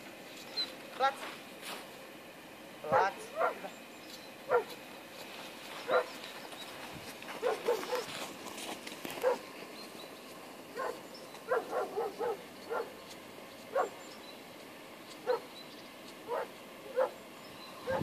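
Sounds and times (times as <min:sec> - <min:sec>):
dog barking and yipping: 0:02.9 - 0:03.7, 0:04.5 - 0:04.8, 0:05.9 - 0:06.2, 0:07.4 - 0:08.2, 0:09.2 - 0:09.4, 0:10.8 - 0:13.0, 0:13.7 - 0:14.0, 0:15.2 - 0:15.5, 0:16.3 - 0:17.2.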